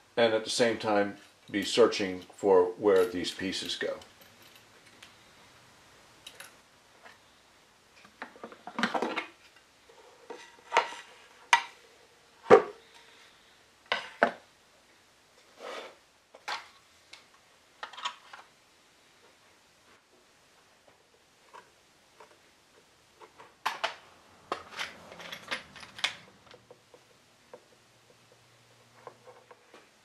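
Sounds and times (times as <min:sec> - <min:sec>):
tools set down on workbench: 0:23.4 - 0:26.6.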